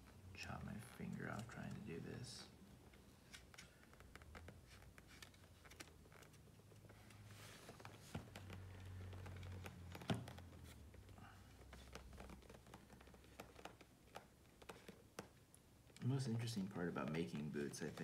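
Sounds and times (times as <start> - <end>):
faint low hum: 0.0 - 14.7.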